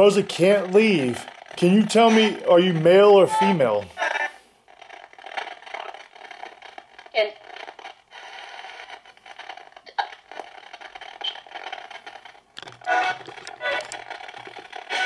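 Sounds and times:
choppy radio static: 0.0 - 4.0
voice fragments: 0.0 - 4.0.

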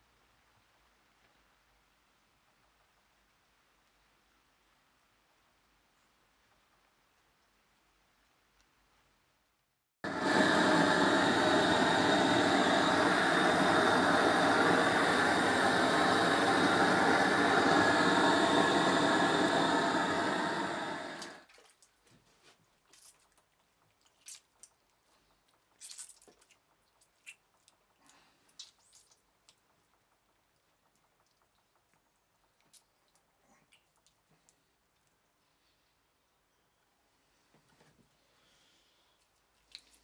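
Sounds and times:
gas torch flame roaring: 10.0 - 21.5
hands squishing soft clay: 21.5 - 35.4.

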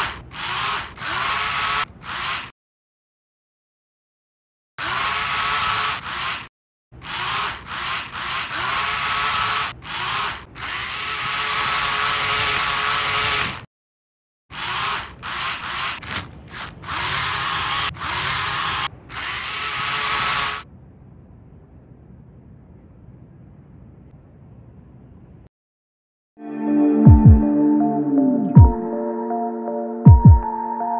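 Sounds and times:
small electric motors whirring: 0.0 - 2.5, 4.8 - 13.7, 14.5 - 20.6.

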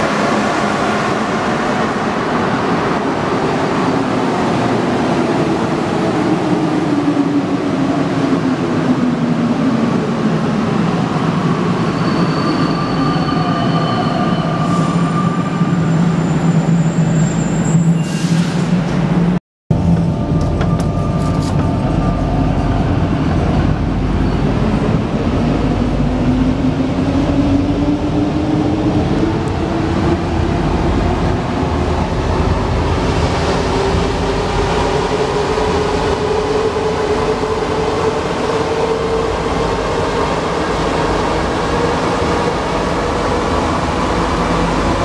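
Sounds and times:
metro train rumble: 0.0 - 45.0.

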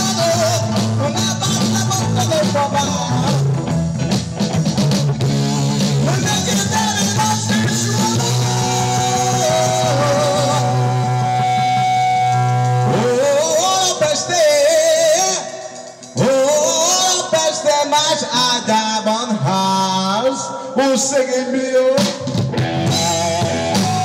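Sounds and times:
man singing: 0.0 - 3.7, 5.7 - 24.0
live band playing: 0.0 - 24.0.

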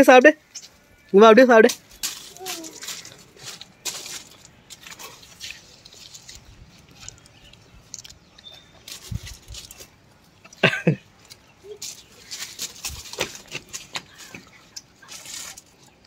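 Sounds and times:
vine leaves rustling: 1.1 - 10.5, 11.1 - 16.0
small clicks and crackles: 1.7 - 10.6
boy chewing grapes: 2.0 - 16.0.

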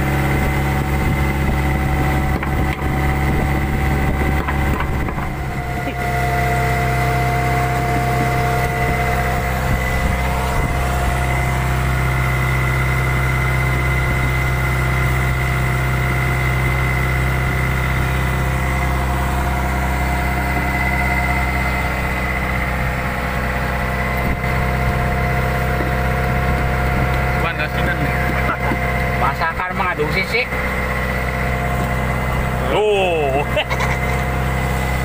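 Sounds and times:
boat engine droning: 0.0 - 35.0.

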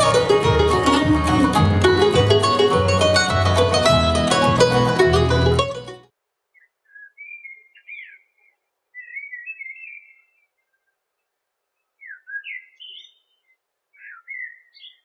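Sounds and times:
songbird singing: 6.4 - 15.0.

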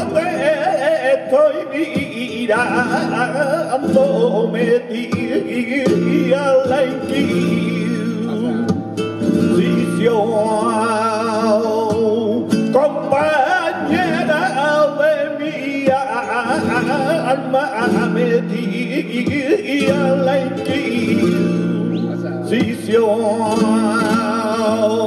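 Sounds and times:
flamenco guitar: 0.0 - 25.0
man singing flamenco: 0.0 - 25.0.

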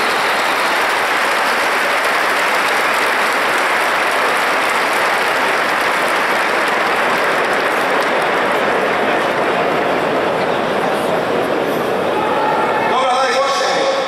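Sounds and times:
stadium crowd clapping and cheering: 0.0 - 14.0.

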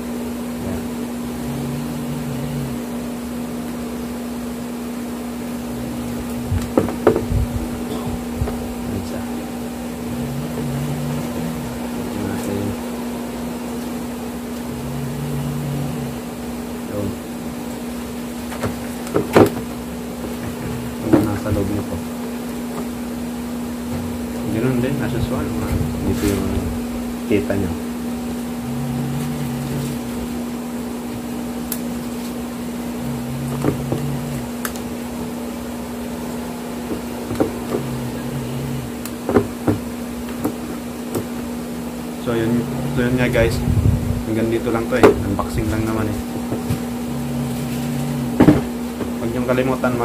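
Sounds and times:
constant low tone: 0.0 - 50.0
steady machine hum: 0.0 - 50.0
faint knocks: 5.8 - 14.0, 45.0 - 49.2.

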